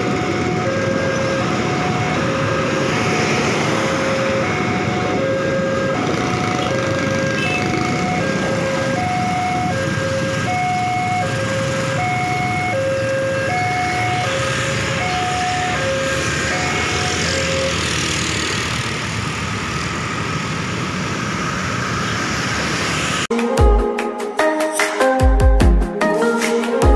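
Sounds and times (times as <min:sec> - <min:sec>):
motorcycle and car traffic: 0:00.0 - 0:23.3
level crossing two-tone alarm: 0:00.2 - 0:17.8.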